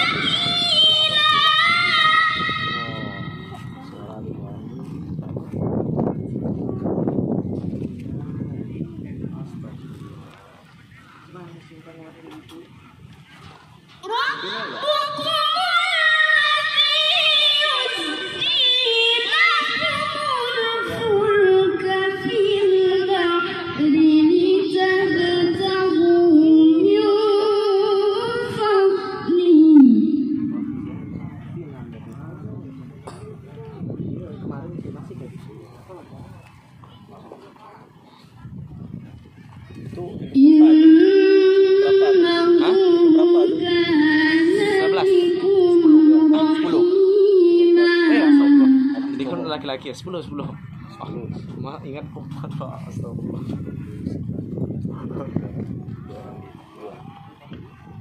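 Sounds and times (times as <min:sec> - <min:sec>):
young person reciting melodically: 0:00.0 - 0:03.5, 0:14.0 - 0:30.8, 0:40.3 - 0:49.2.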